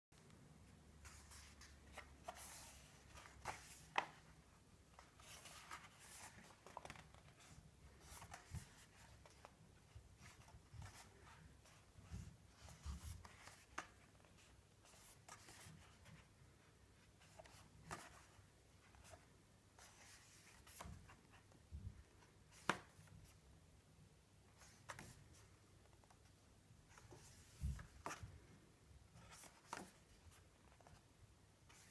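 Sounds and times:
book pages being turned: 0:01.0 - 0:04.3, 0:04.9 - 0:16.2, 0:19.8 - 0:21.5, 0:24.5 - 0:26.3, 0:26.9 - 0:28.5, 0:29.2 - 0:31.9.

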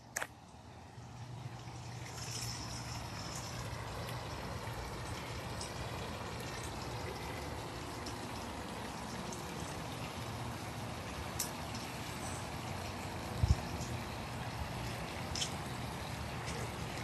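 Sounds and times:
running water trickling: 0:00.0 - 0:17.0.

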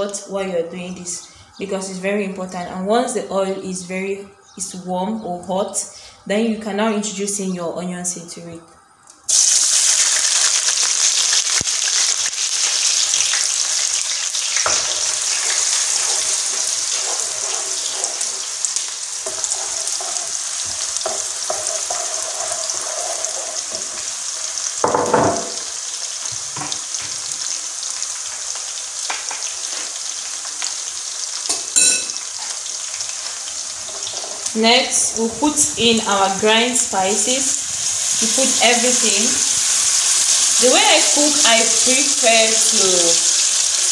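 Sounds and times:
onions sizzling in hot oil: 0:09.3 - 0:43.9.

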